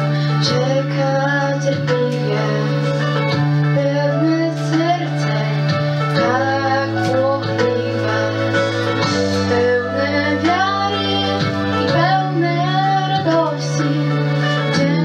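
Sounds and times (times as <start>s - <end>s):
instrumental backing track: 0.0s - 15.0s
girls singing into a microphone: 3.8s - 15.0s.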